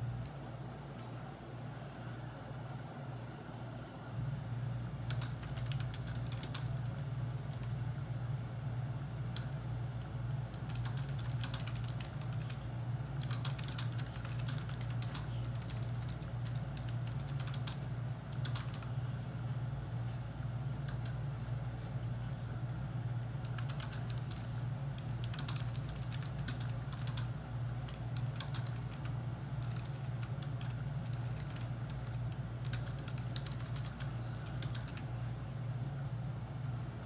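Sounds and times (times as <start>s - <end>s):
typing on a keyboard: 5.1s - 7.8s, 9.3s - 9.6s, 10.4s - 12.6s, 13.2s - 18.9s, 20.8s - 21.2s, 23.4s - 35.1s.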